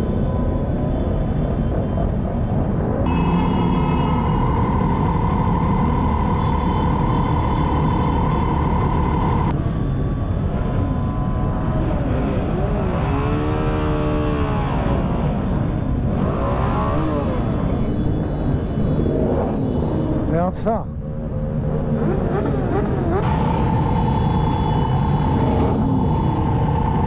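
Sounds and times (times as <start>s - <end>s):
motorcycle engines running: 3.0s - 27.0s
motorcycle engine revving: 11.5s - 20.3s, 21.1s - 27.0s
steady high whine: 16.9s - 27.0s.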